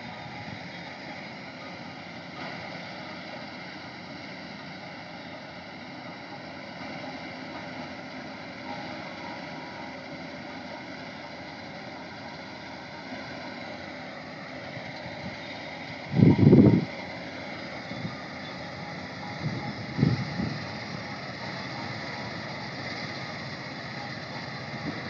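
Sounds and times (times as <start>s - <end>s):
combine harvester drone: 0.0s - 25.0s
faint whining tones: 0.0s - 25.0s.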